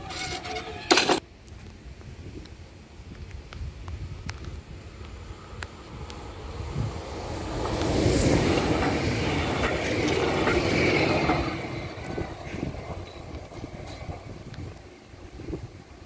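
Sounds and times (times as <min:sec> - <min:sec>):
vehicle crossing railway tracks: 0:02.5 - 0:16.0.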